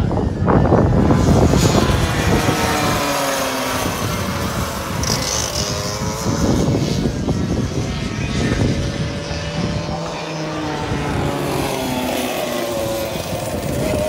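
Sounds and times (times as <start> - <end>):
kart engines whining: 0.0 - 14.0.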